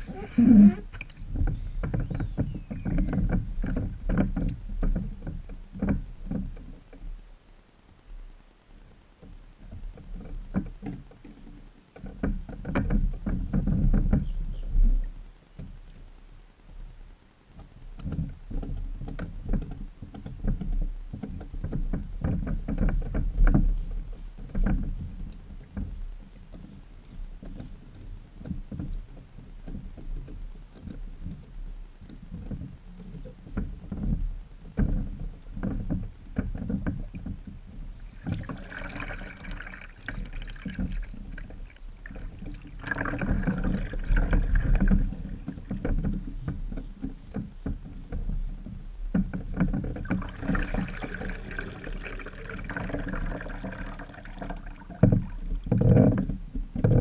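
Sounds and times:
water splashing: 0:00.0 - 0:02.0, 0:36.6 - 0:46.8, 0:49.6 - 0:56.0
water lapping against hulls: 0:00.0 - 0:57.0.

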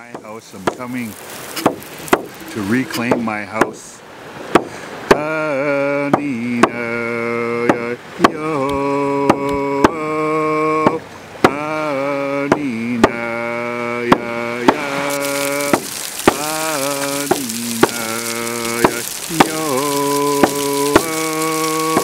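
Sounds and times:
low chant-like singing: 0:05.1 - 0:22.0.

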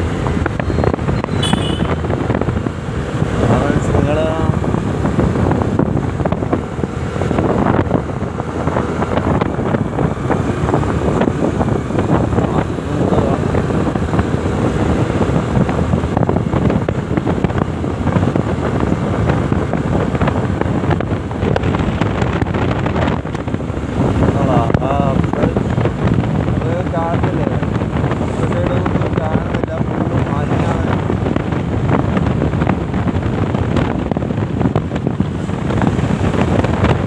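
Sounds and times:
engine: 0:00.0 - 0:37.0
road noise: 0:00.0 - 0:37.0
wind buffeting microphone: 0:00.0 - 0:37.0.

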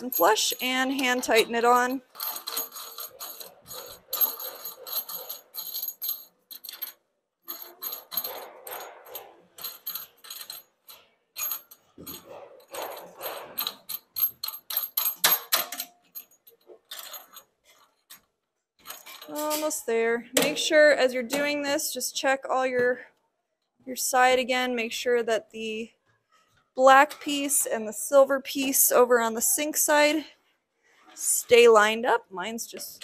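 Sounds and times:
metallic clicks and clinks: 0:00.0 - 0:19.8.

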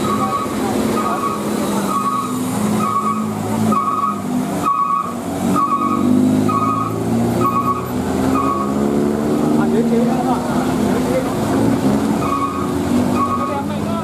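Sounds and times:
two-tone electronic beep: 0:00.0 - 0:08.8, 0:12.2 - 0:13.6
diesel truck engine under load: 0:00.0 - 0:14.0.

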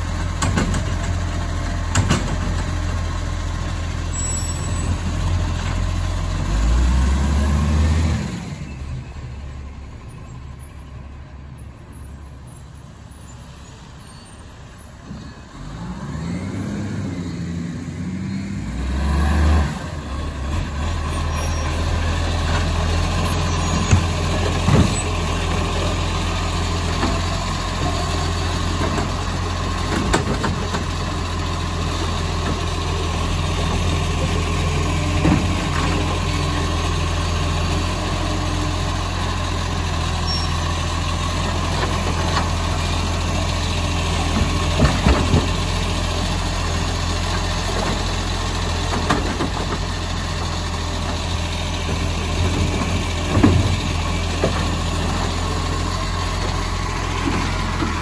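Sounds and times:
truck diesel engine idling: 0:20.0 - 0:58.0.

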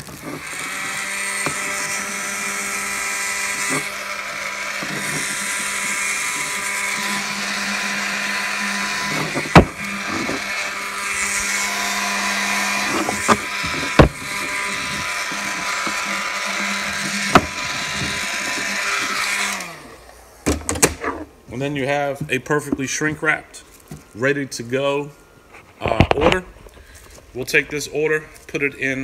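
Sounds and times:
heat gun hum and air rush: 0:00.0 - 0:20.8.

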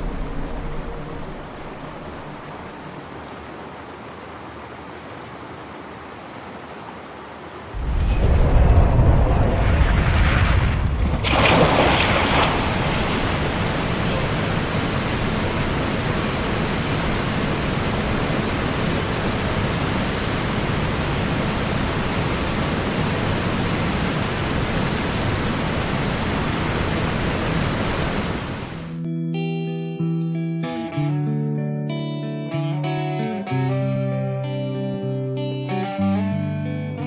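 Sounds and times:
water rushing through dam breach: 0:00.0 - 0:28.9.

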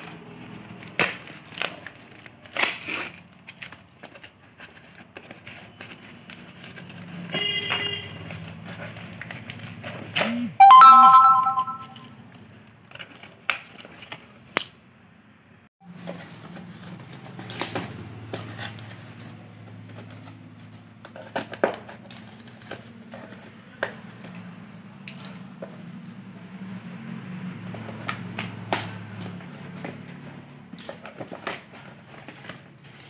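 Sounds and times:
cardboard ripping and rustling: 0:00.0 - 0:07.2
loud chime: 0:10.6 - 0:12.0.

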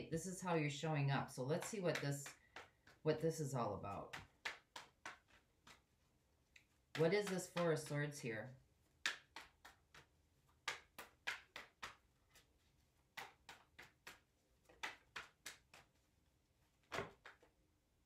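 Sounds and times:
cards being shuffled: 0:04.1 - 0:08.0, 0:09.0 - 0:16.1, 0:16.7 - 0:17.6.

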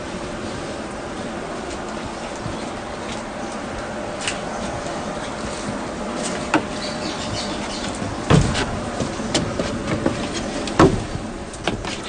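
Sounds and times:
steady background hiss: 0:00.0 - 0:12.0
bags thudding on wooden platform: 0:08.1 - 0:09.6.

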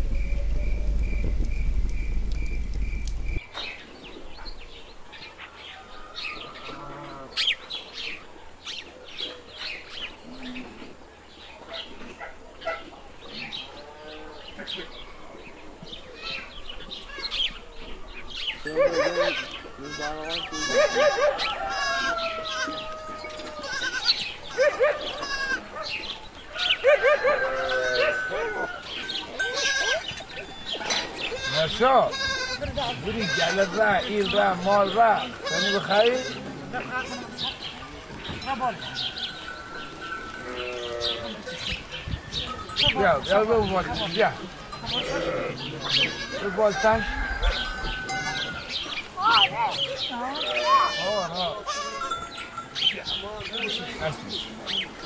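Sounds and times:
crickets chirping: 0:00.0 - 0:03.4
low rumble: 0:00.0 - 0:03.4
birds chirping: 0:00.0 - 0:55.0
sheep bleating: 0:18.7 - 0:25.7, 0:31.3 - 0:37.5, 0:44.8 - 0:47.0, 0:50.4 - 0:52.2.

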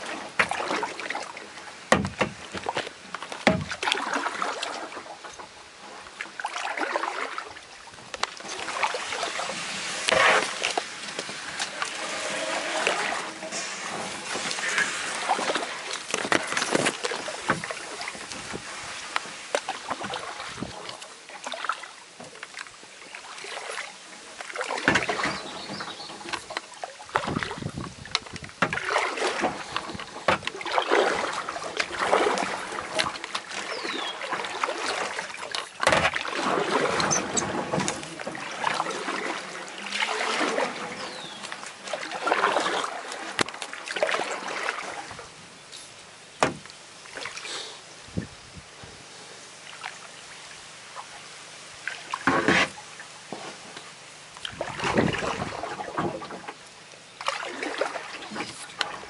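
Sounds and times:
paddle splashing in water: 0:00.0 - 0:48.3, 0:49.6 - 0:59.0
reeds scraping against kayak: 0:08.3 - 0:21.2, 0:23.5 - 0:46.0, 0:52.2 - 0:53.9, 0:57.8 - 0:59.0.

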